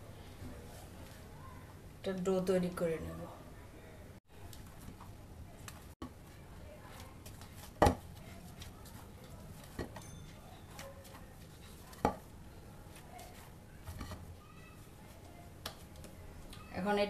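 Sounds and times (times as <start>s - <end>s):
dough being kneaded by hand: 4.4s - 16.7s.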